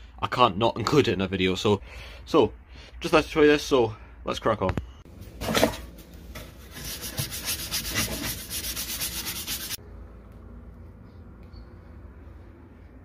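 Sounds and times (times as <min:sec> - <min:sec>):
bristle brush scrubbing plastic: 0:06.6 - 0:09.8.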